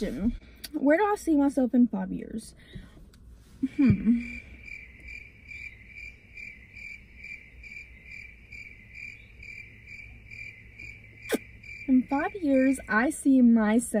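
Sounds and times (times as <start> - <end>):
low hum: 1.8 - 13.8
crickets chirping: 3.8 - 13.2.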